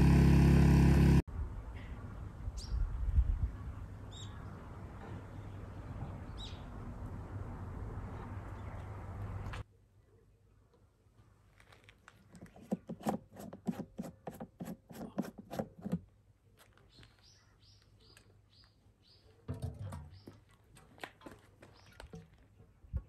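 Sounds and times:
fuel cap unscrewing clicks: 12.4s - 16.0s.

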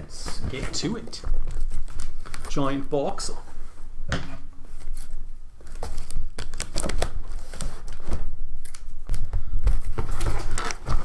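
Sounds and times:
cardboard flaps scraping: 9.7s - 11.0s.

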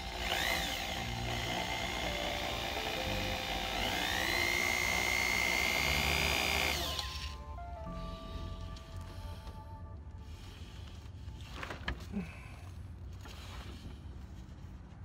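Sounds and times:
cordless drill whining: 0.0s - 7.4s.

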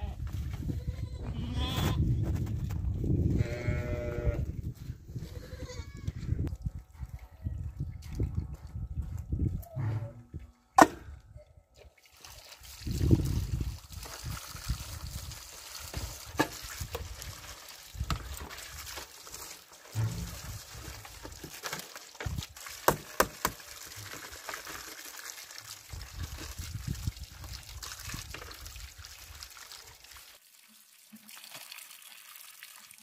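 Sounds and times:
water splashing in metal bowl: 12.0s - 33.0s.

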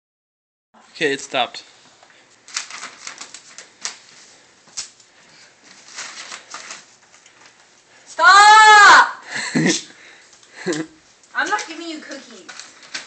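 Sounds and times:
wrapping paper rustling and crinkling: 2.2s - 8.1s, 11.4s - 13.0s.

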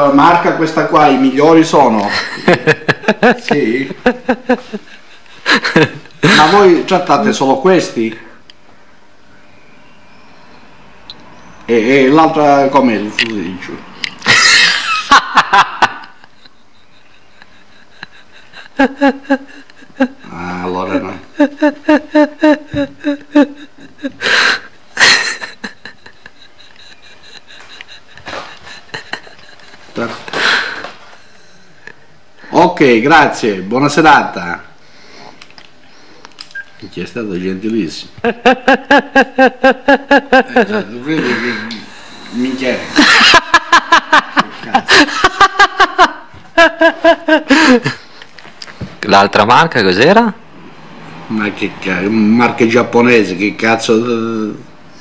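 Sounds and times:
person laughing: 2.0s - 6.8s, 14.2s - 31.6s, 38.2s - 48.1s.

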